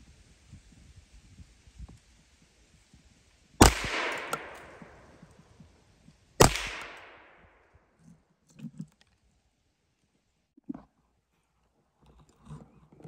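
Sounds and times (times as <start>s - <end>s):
gunshots with echo: 3.6s - 5.2s, 6.4s - 7.5s.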